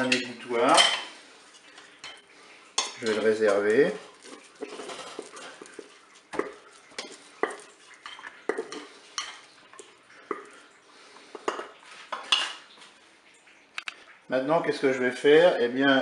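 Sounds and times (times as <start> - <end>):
utensil scraping a metal pot: 0.0 - 10.6.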